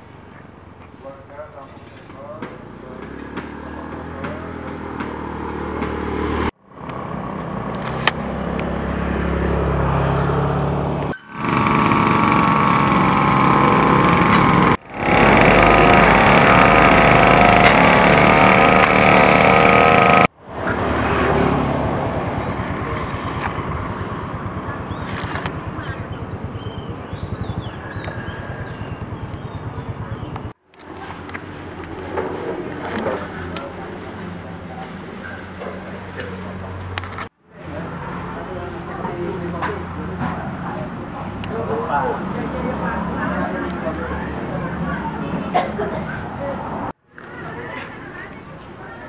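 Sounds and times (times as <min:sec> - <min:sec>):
passing vehicles: 0:00.0 - 0:49.0
motorcycle engine: 0:01.8 - 0:45.6.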